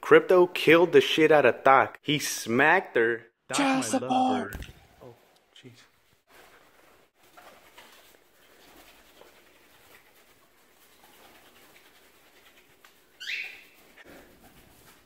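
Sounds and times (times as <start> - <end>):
cockatiel shrill call: 13.2 - 13.8.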